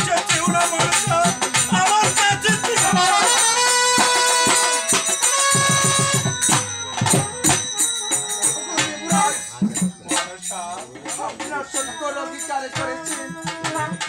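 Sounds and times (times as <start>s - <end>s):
trumpet melody: 0.0s - 9.5s
jingling hand percussion: 0.0s - 14.0s
steady drum beat: 0.0s - 14.0s.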